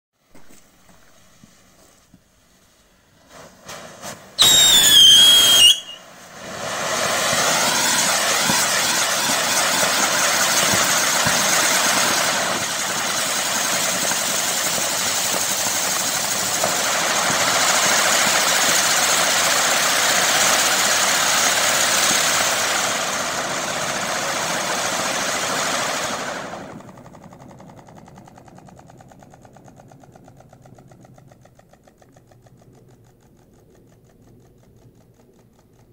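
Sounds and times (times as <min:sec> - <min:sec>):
firework fuse sputtering: 0:00.2 - 0:35.9
spinning firework hissing: 0:00.2 - 0:35.9
firework shrill whistle: 0:03.2 - 0:26.7.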